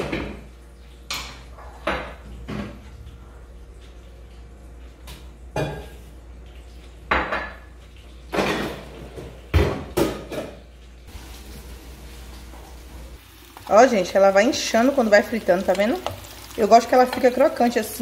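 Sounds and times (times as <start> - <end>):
crockery and pans clattering: 0.0 - 0.5, 7.1 - 7.7, 8.3 - 10.6.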